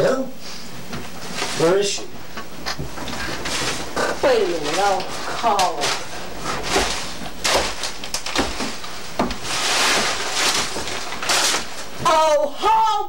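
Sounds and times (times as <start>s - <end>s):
paper rustling underfoot: 0.5s - 2.1s, 2.7s - 12.4s
footsteps on wooden floor: 2.3s - 5.2s, 8.4s - 9.5s.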